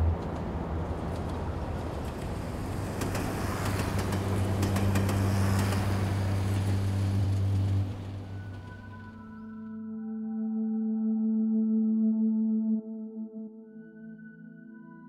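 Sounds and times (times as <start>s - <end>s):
street traffic hum: 0.0s - 9.4s.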